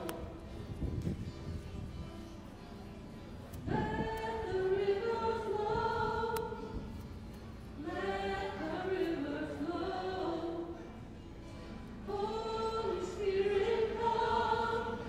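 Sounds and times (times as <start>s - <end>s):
choir singing a hymn: 3.6s - 7.0s, 7.8s - 10.9s, 12.0s - 15.0s.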